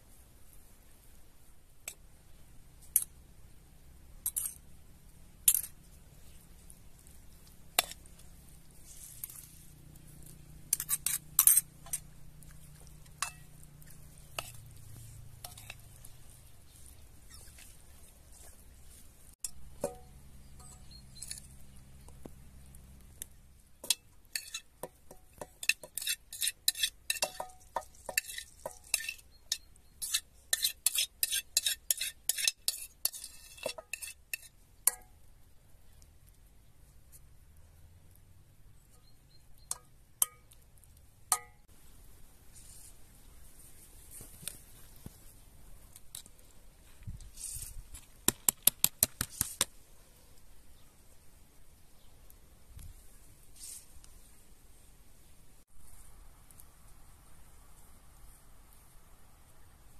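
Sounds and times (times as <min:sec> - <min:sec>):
spoon scraping ceramic bowl: 0:10.7 - 0:16.3, 0:19.4 - 0:21.7, 0:23.8 - 0:34.5.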